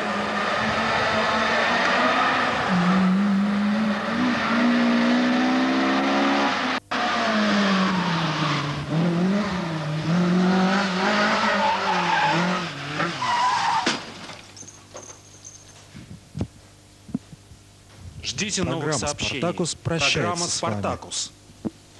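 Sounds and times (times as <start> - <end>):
tyres squealing: 0.0 - 5.1, 10.4 - 15.2
racing car engine revving: 0.0 - 13.4.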